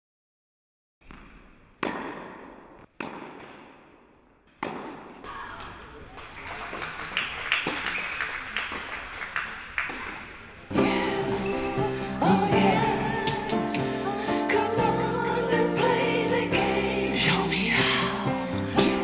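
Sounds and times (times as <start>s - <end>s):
tennis balls hit by rackets: 1.0s - 6.1s.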